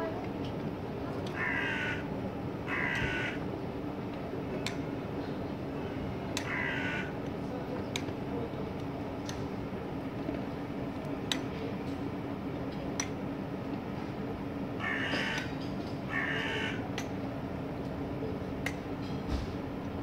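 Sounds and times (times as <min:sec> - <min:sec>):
low background hum: 0:00.0 - 0:20.0
crow cawing: 0:01.3 - 0:02.1, 0:02.7 - 0:03.4, 0:06.4 - 0:07.2, 0:14.8 - 0:16.9.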